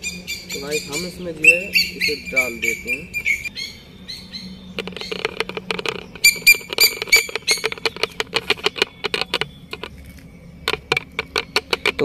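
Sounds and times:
birds squawking: 0:00.0 - 0:12.0
rapid chattering clicks: 0:04.8 - 0:10.0, 0:10.6 - 0:12.0.

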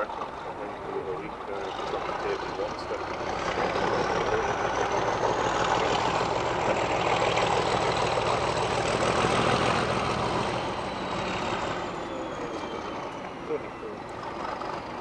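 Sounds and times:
diesel engine droning: 0:00.0 - 0:15.0
high engine whine: 0:00.0 - 0:15.0.

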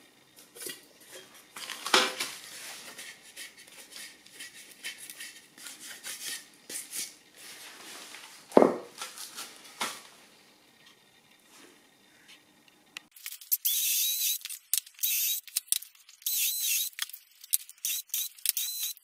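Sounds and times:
wooden knock: 0:08.6 - 0:08.9.

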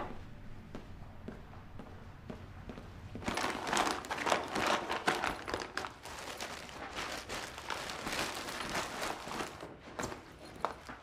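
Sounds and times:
backpack and clothes rustling: 0:03.2 - 0:11.0.

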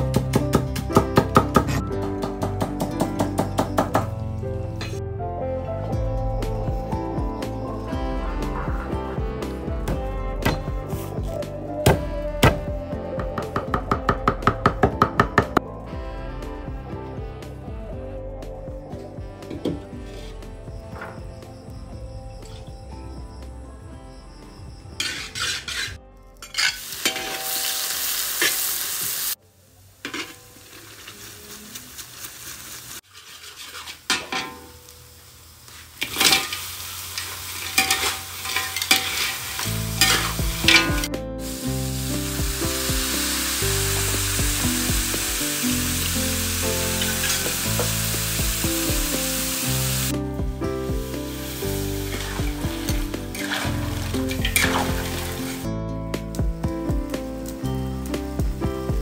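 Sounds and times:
spatula scraping and clattering: 0:25.0 - 0:27.7, 0:33.0 - 0:34.8, 0:36.0 - 0:41.1, 0:52.1 - 0:55.3
loud sizzling in hot oil: 0:25.0 - 0:59.0
water being poured: 0:51.3 - 0:55.7.

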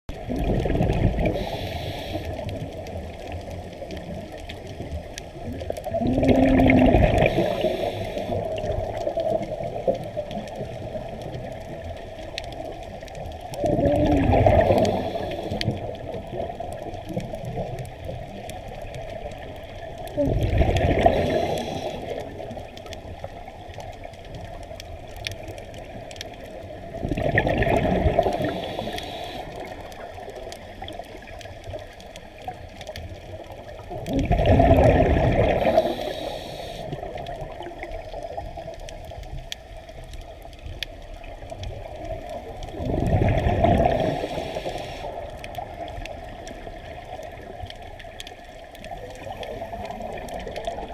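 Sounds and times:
exhaled bubbles bursting: 0:00.1 - 0:01.7, 0:02.3 - 0:23.3, 0:26.7 - 0:31.5, 0:33.6 - 0:36.2, 0:41.6 - 0:48.2
underwater water noise: 0:00.1 - 0:50.9.

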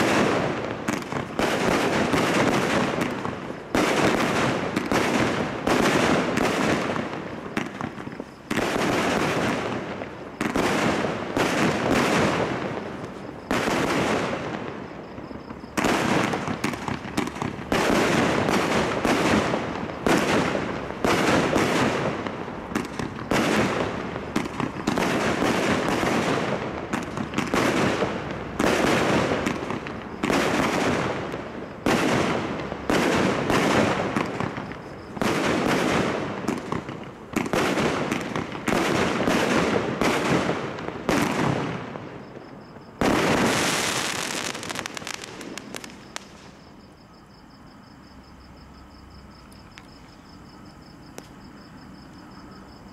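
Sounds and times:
fireworks aerial bursts: 0:00.0 - 0:46.8.

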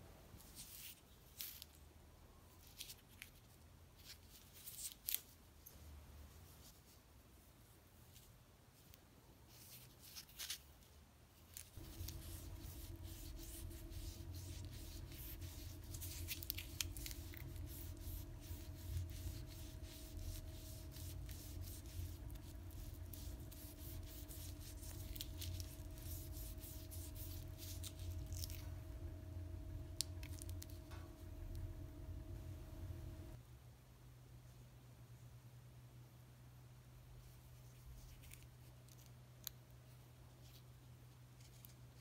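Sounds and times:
steady low hum: 0:11.2 - 0:38.0.

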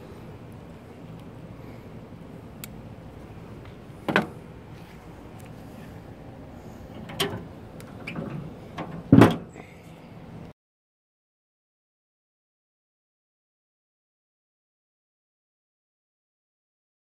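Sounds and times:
metal grill lid banging shut: 0:04.1 - 0:04.4, 0:08.0 - 0:09.5.

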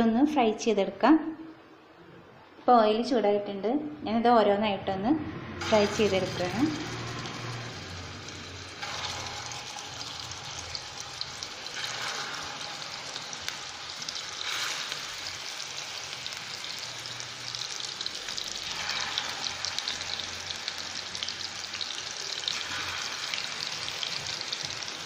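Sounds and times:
oil sizzling in a frying pan: 0:05.6 - 0:25.0.

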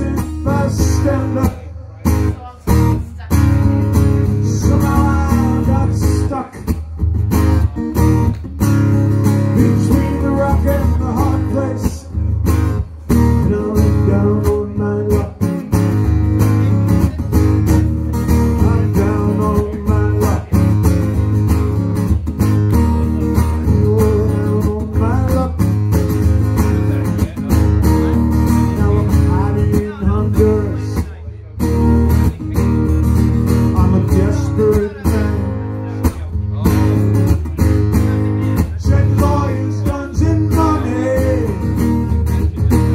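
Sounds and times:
acoustic guitar strumming: 0:00.0 - 0:42.9.

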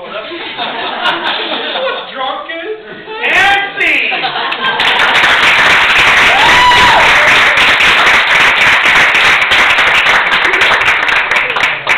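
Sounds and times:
audience applauding: 0:04.5 - 0:11.9
person whooping: 0:06.2 - 0:07.6.

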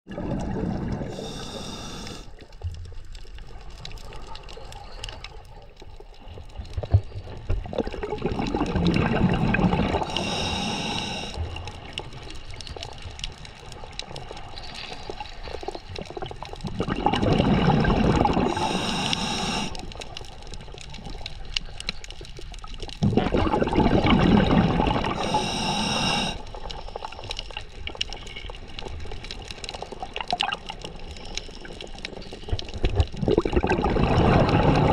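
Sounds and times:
exhaled bubbles rushing: 0:00.1 - 0:01.4, 0:07.4 - 0:10.4, 0:15.8 - 0:19.0, 0:23.0 - 0:25.7, 0:30.0 - 0:30.9, 0:32.5 - 0:34.9
regulator inhale hiss: 0:01.1 - 0:02.5, 0:10.0 - 0:11.5, 0:18.5 - 0:20.1, 0:25.2 - 0:26.6.

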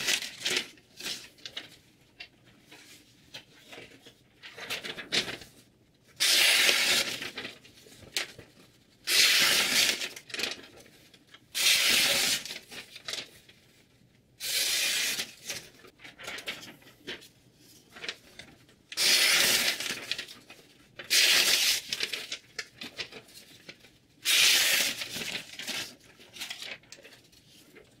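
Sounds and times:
knife slicing paper: 0:06.2 - 0:07.4, 0:09.1 - 0:10.4, 0:11.6 - 0:12.8, 0:14.4 - 0:15.6, 0:19.0 - 0:20.3, 0:21.0 - 0:22.4, 0:24.2 - 0:26.0.

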